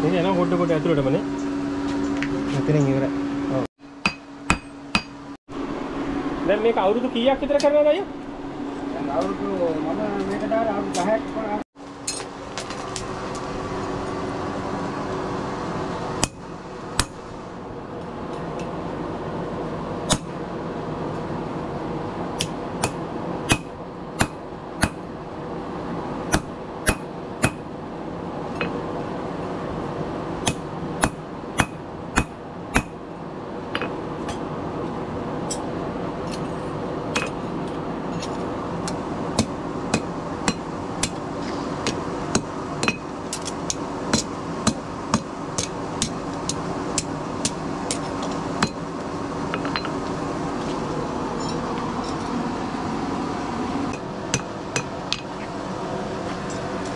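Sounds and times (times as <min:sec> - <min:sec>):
hammer striking metal on anvil: 0:04.0 - 0:05.2, 0:17.0 - 0:17.2, 0:22.4 - 0:25.0, 0:26.3 - 0:27.7, 0:30.4 - 0:33.0, 0:44.1 - 0:48.8.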